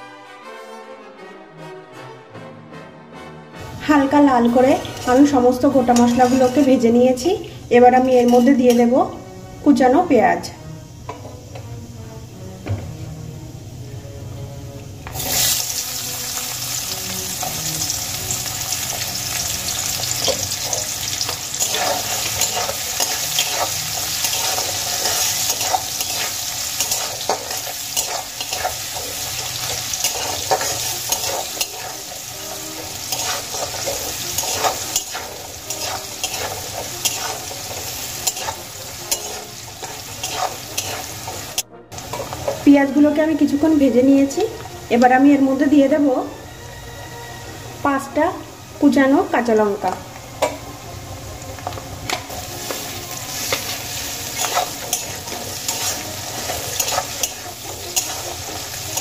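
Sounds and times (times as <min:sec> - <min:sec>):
onion sizzling in hot oil: 0:03.8 - 0:59.0
metal spatula scraping pan: 0:04.5 - 0:07.0, 0:18.8 - 0:43.0, 0:52.2 - 0:59.0.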